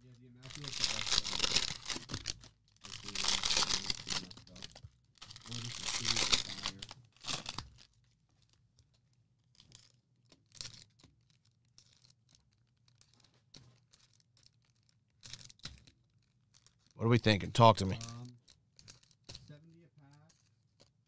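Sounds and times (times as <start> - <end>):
cellophane crinkling: 0.0 - 8.7, 9.5 - 17.0
cellophane tearing: 0.4 - 7.9.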